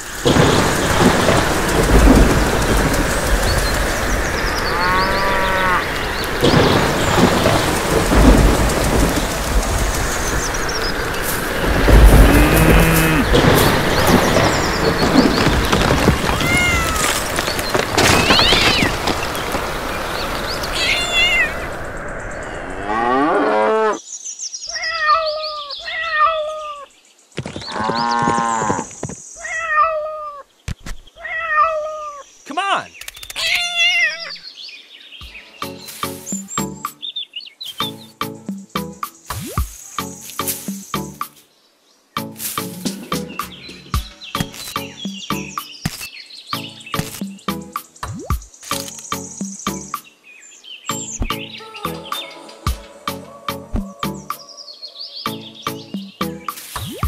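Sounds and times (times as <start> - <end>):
heavy rain: 0.0 - 22.6
thunder rumbling: 0.0 - 23.0
cow mooing: 4.7 - 5.9, 12.2 - 13.4
kitten meowing: 16.4 - 17.1, 20.8 - 21.6, 31.2 - 32.2, 33.4 - 34.4.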